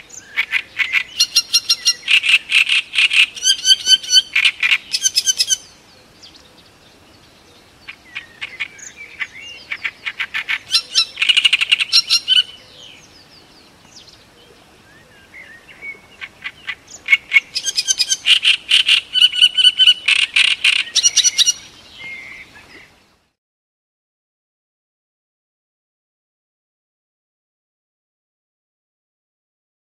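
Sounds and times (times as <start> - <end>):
warbler singing: 0.0 - 23.2.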